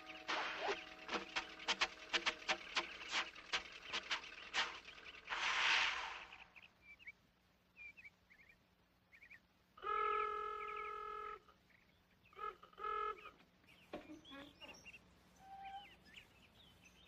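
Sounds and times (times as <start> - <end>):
vehicle horn honking: 0.0 - 2.6, 9.8 - 11.5, 12.3 - 13.3
small birds chirping: 0.0 - 17.0.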